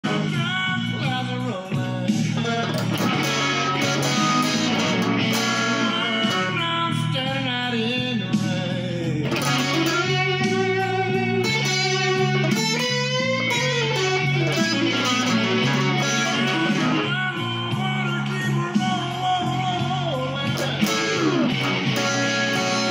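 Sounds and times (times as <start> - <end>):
electric guitar blues lead: 0.0 - 22.9.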